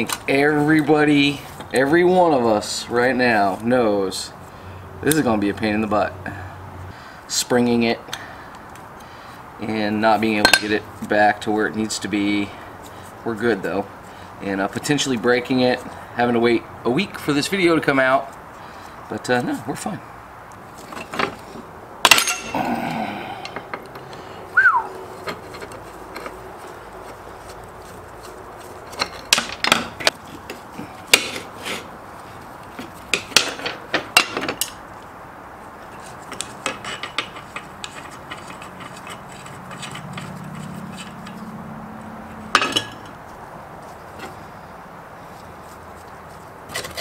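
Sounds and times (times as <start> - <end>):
metal parts and tools clinking: 10.3 - 10.8, 22.0 - 23.9, 25.1 - 30.2, 35.9 - 41.5, 42.5 - 43.2.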